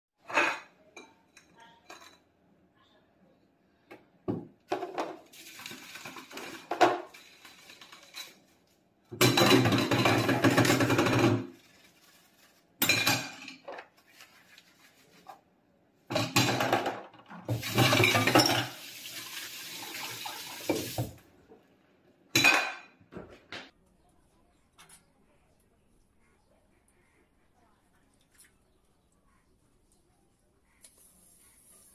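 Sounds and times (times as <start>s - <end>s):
dishes clinking and scraping: 0.2s - 2.4s, 4.7s - 8.6s, 9.2s - 11.6s, 12.8s - 14.0s, 16.1s - 18.9s, 22.4s - 23.4s.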